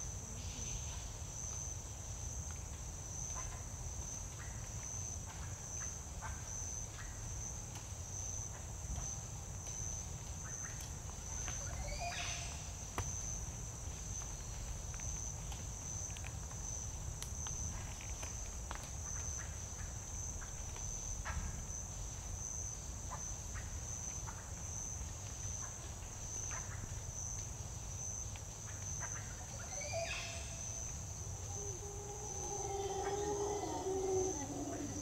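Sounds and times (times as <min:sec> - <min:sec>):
high-pitched insect chorus: 0:19.1 - 0:35.0.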